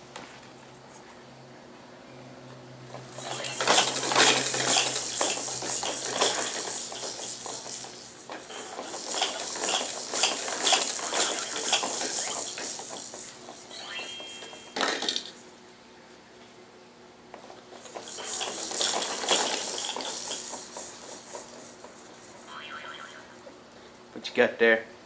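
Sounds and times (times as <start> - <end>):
plastic toys rattling and clacking: 2.9 - 15.4, 17.4 - 23.8.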